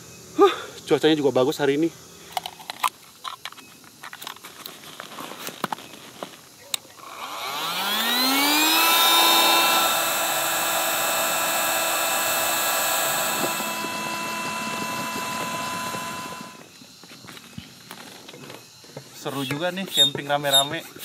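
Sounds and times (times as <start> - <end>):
electric air pump whining: 7.0 - 21.0.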